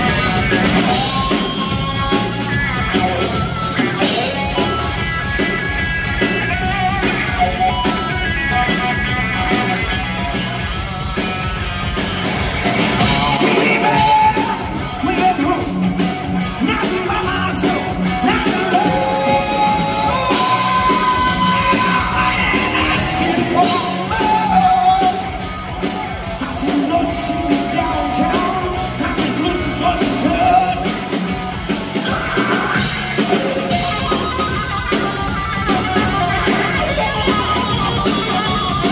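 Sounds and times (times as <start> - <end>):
drums: 0.0 - 38.9
electric guitar: 0.0 - 38.9
live rock band playing: 0.0 - 38.9
man singing into a microphone: 13.2 - 15.8, 16.6 - 25.3, 26.4 - 31.0.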